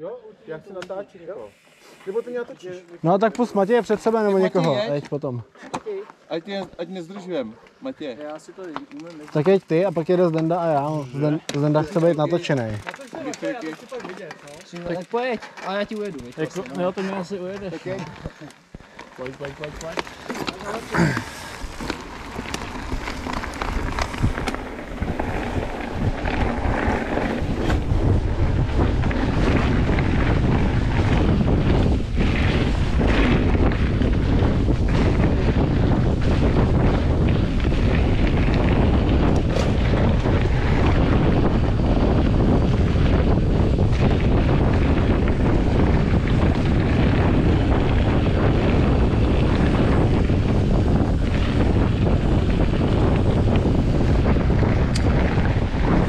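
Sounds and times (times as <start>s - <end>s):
bike tyres rolling on dirt: 0.6s - 56.0s
wind buffeting microphone: 19.3s - 56.0s.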